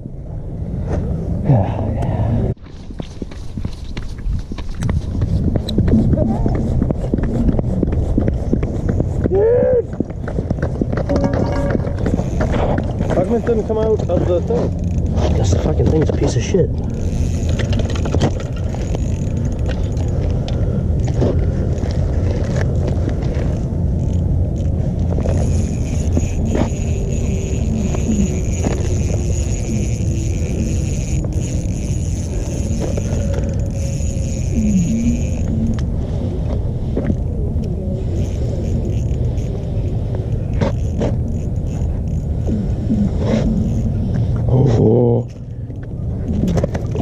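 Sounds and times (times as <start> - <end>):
wind buffeting microphone: 0.0 - 47.0
faint scrapes and clicks: 10.0 - 44.5.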